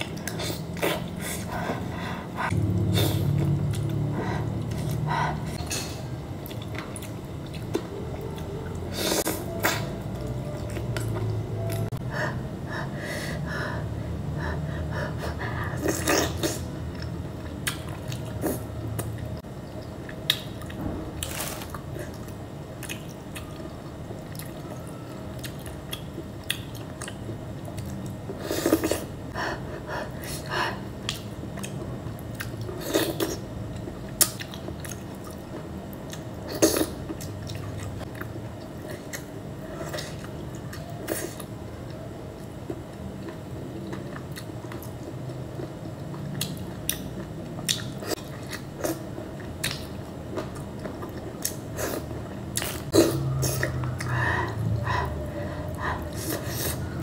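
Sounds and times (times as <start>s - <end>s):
steady low hum: 0.0s - 57.0s
chewing: 6.4s - 9.8s, 31.0s - 54.6s.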